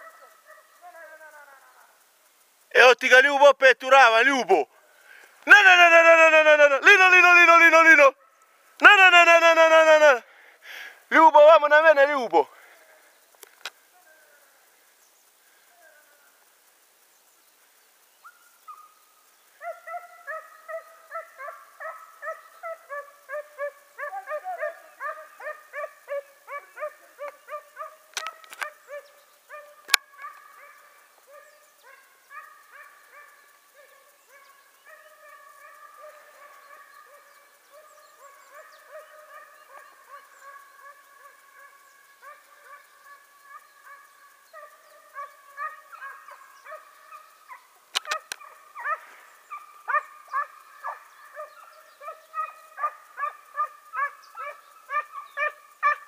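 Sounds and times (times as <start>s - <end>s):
hounds baying: 0.0s - 1.4s, 19.6s - 56.0s.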